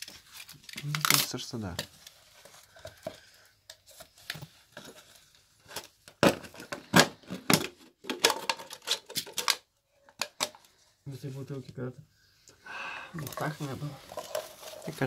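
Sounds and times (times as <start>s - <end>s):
plastic crinkling: 13.2s - 15.0s.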